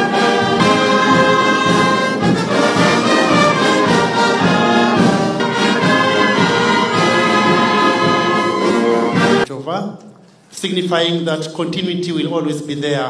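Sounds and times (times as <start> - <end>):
brass band playing slow music: 0.0 - 9.5.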